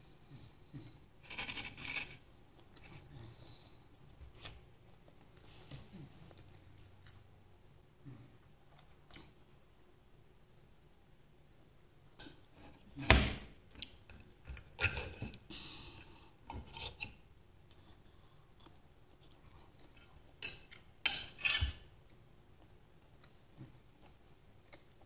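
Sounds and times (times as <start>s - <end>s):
cutlery clinking on a plate: 20.4s - 21.8s.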